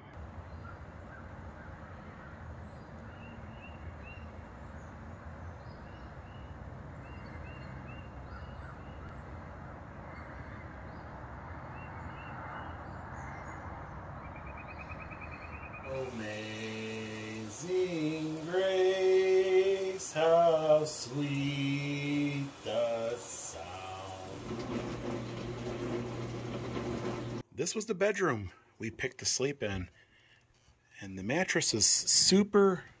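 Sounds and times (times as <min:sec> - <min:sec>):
birds chirping: 0:00.0 - 0:27.4
steady background hiss: 0:15.9 - 0:24.5.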